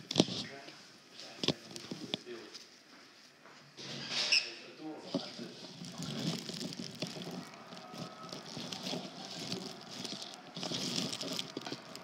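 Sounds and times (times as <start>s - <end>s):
rustling leaves: 5.2s - 12.0s
small clicks and ticks: 5.6s - 12.0s.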